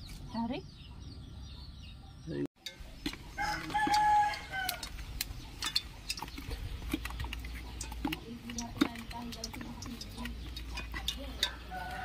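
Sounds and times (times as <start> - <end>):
rooster crowing: 3.4 - 4.8, 11.7 - 12.0.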